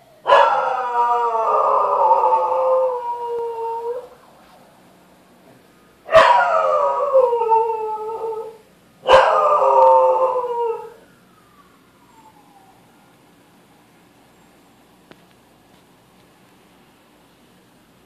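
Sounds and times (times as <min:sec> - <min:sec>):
dog howling: 0:00.2 - 0:04.2, 0:06.1 - 0:11.1.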